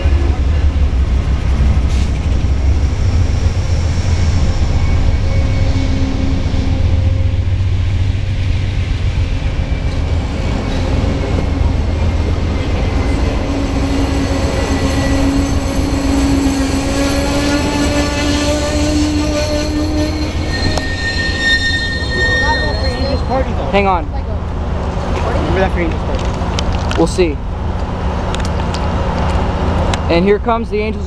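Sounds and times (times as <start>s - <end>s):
train wheels rumbling on rail: 0.0s - 31.0s
thin squealing tones: 3.9s - 7.6s, 13.7s - 23.7s.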